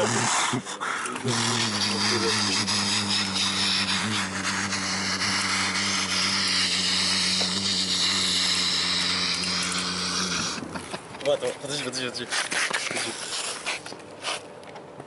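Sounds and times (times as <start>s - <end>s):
rough hissing scrape: 0.0s - 10.7s, 11.7s - 14.5s
small motor whirring: 0.0s - 11.0s.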